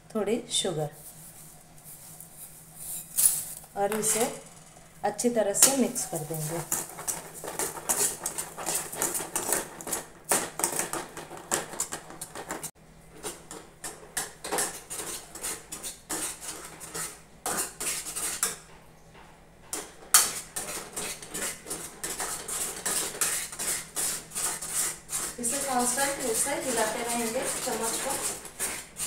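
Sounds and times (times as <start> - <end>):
spatula scraping a pan: 5.6 - 18.7, 19.7 - 29.0.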